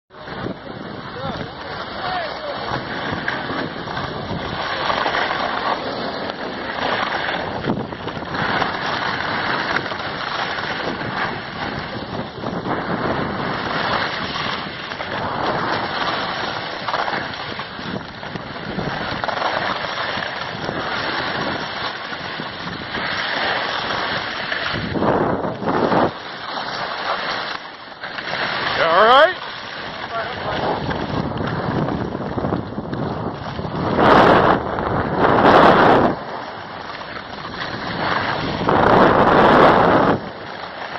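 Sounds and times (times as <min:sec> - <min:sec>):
wind rushing over microphone: 0:00.1 - 0:27.6, 0:28.3 - 0:40.9
skis scraping over snow: 0:00.1 - 0:40.9.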